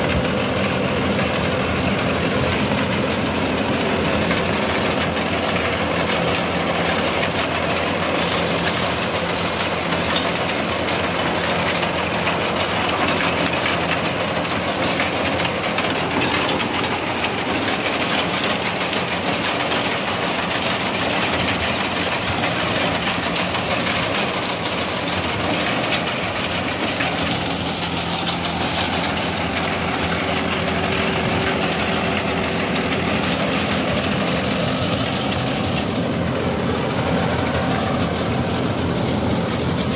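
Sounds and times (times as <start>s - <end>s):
reaper cutting mechanism running: 0.0s - 39.9s
tractor diesel engine under load: 0.0s - 39.9s.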